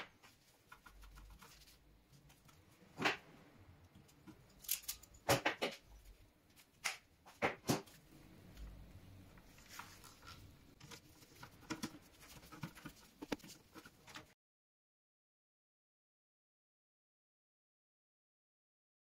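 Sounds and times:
wires clicking into breaker terminals: 3.8s - 6.0s
cable and gloves rustling: 7.8s - 14.4s.

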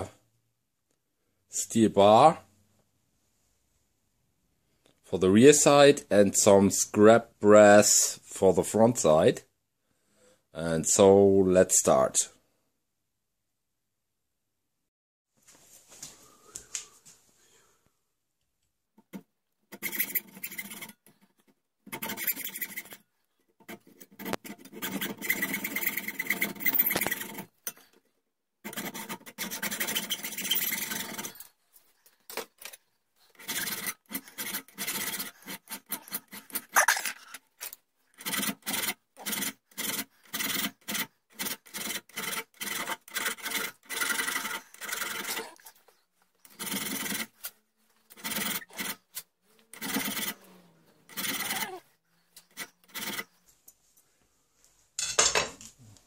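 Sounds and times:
hand file rasping metal: 19.0s - 28.0s, 28.6s - 53.4s
hacksaw cutting metal: 19.7s - 21.2s, 21.9s - 23.0s, 23.6s - 28.0s, 28.6s - 31.5s, 32.3s - 45.7s, 46.4s - 50.4s, 51.1s - 51.8s, 52.4s - 53.4s.

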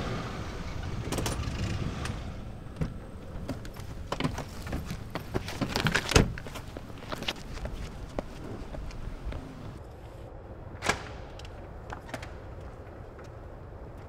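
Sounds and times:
footsteps at a car: 2.8s - 9.8s.

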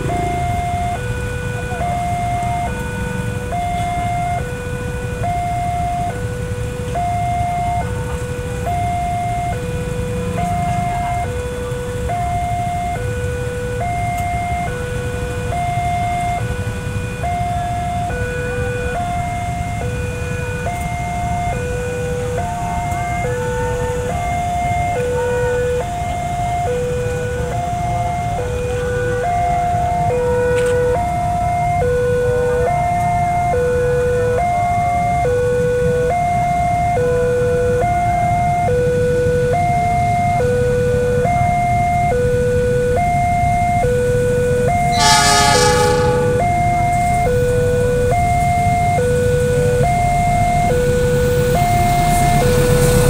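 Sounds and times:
road traffic rumble: 0.0s - 53.0s
two-tone crossing alarm: 0.0s - 53.0s.

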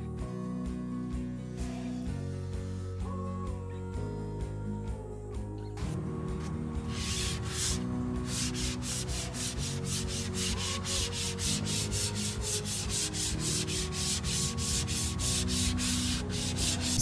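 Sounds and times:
sanding sponge rubbing wood: 6.8s - 17.0s.

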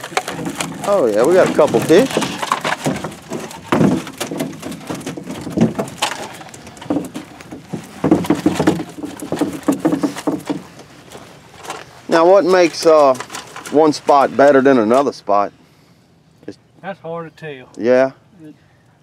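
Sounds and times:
net hoops knocking on boat floor: 0.0s - 11.8s.

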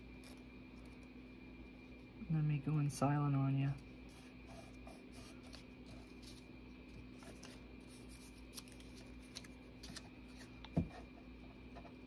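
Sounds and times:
steady low hum: 0.0s - 12.0s
paper rustling: 4.1s - 10.8s.

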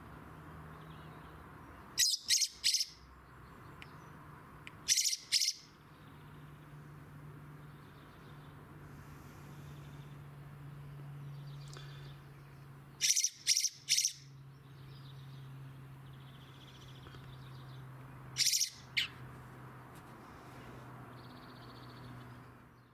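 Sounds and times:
bird high-pitched calls: 2.0s - 3.1s, 4.8s - 5.8s, 13.0s - 15.3s, 18.4s - 19.2s.

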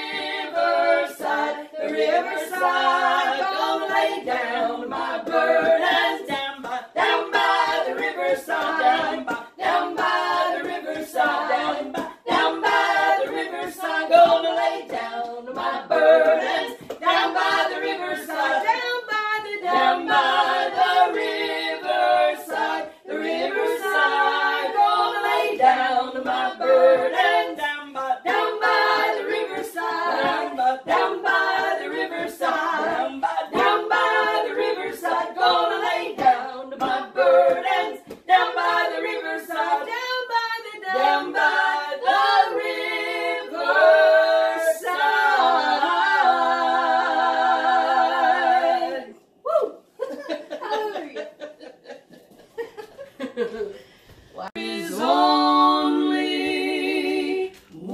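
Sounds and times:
women singing unaccompanied: 0.0s - 49.7s, 54.4s - 57.9s.

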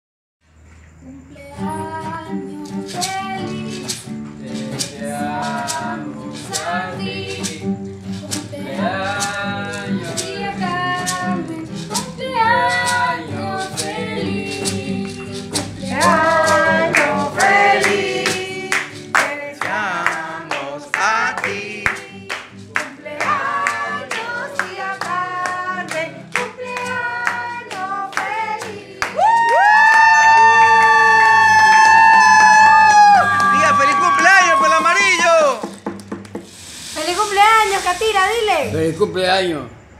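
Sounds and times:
acoustic guitar: 0.5s - 39.9s
group of voices singing: 1.2s - 29.4s
sharp percussion strokes: 33.3s - 39.7s.

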